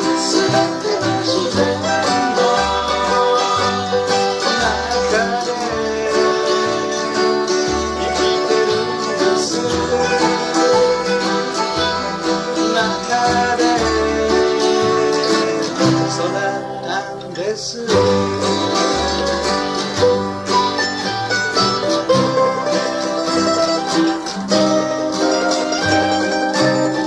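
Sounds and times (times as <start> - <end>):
person singing: 0.0 - 19.8
bass line: 0.0 - 27.0
plucked acoustic strings: 0.0 - 27.0.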